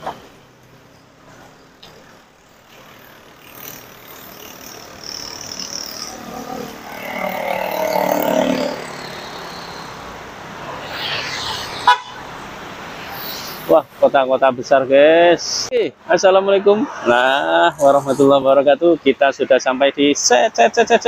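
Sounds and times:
street traffic: 0:00.0 - 0:21.0
vehicle passing close by: 0:06.0 - 0:13.7, 0:16.3 - 0:18.6.

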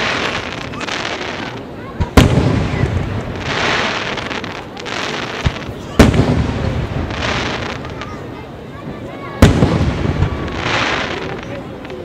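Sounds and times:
steady hiss: 0:00.0 - 0:12.0
firework boom with rumble: 0:02.0 - 0:03.6, 0:05.4 - 0:07.6, 0:09.4 - 0:11.3.

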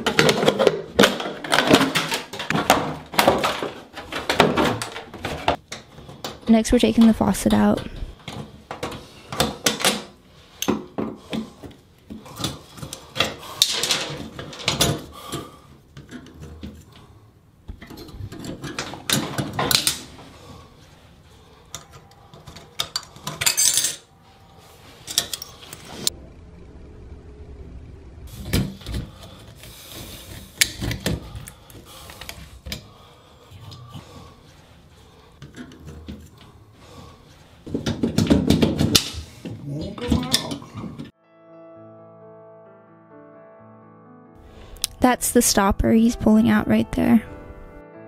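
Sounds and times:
metal tools clinking on fittings: 0:22.8 - 0:24.0.

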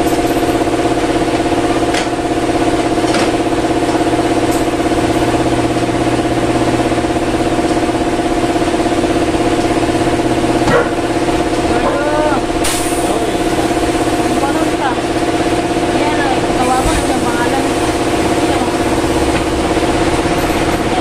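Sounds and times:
machine motor pulsing hum: 0:00.0 - 0:21.0.

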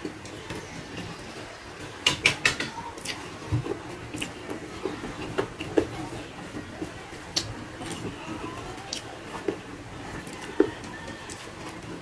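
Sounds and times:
chewing and lip smacking: 0:03.0 - 0:06.0.

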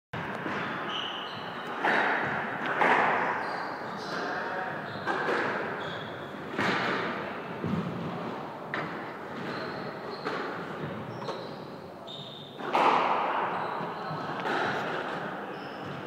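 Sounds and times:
squash ball hitting rackets and walls: 0:00.2 - 0:11.6, 0:12.4 - 0:16.0
shoes squeaking on wooden floor: 0:00.4 - 0:06.8, 0:08.8 - 0:12.8, 0:13.5 - 0:16.0.

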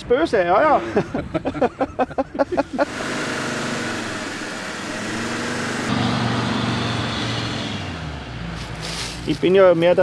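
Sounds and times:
off-road engine under load: 0:02.4 - 0:10.0.

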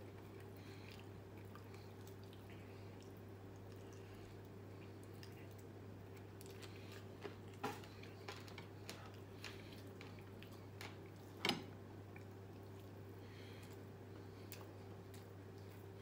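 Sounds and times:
quiet chewing: 0:00.0 - 0:16.0
steady low hum: 0:00.0 - 0:16.0.

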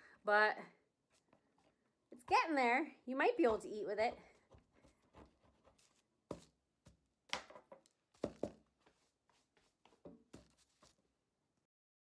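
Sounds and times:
wooden spoon knocks and rustles: 0:04.1 - 0:09.0, 0:09.6 - 0:11.0.

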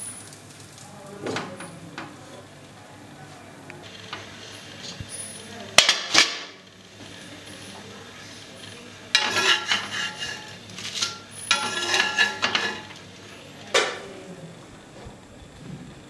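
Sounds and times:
metal spatula scraping iron griddle: 0:07.4 - 0:13.3
sharp metal clank: 0:11.0 - 0:12.9.

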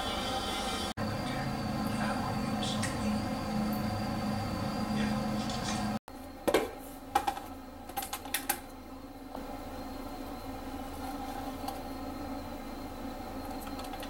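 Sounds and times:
low hum: 0:00.0 - 0:06.4.

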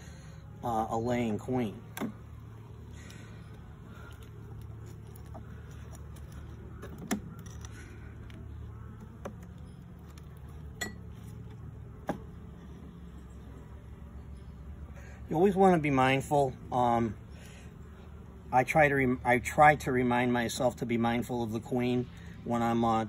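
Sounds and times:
bees buzzing: 0:00.0 - 0:16.0.

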